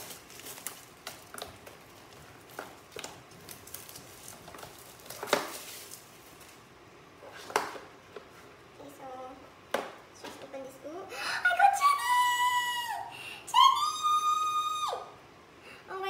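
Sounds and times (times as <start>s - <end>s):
plastic wrap rustling and crinkling: 0.0s - 8.6s.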